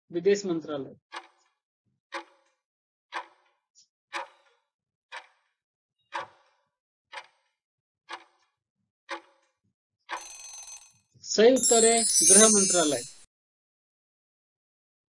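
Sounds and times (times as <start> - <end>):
clock ticking: 4.2 - 4.4.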